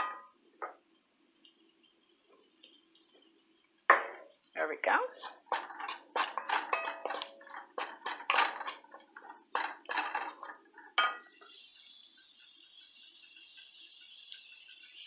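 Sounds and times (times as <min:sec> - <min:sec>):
faint steady hiss: 0:00.0 - 0:15.0
wooden spoon scraping a pot: 0:05.1 - 0:11.3.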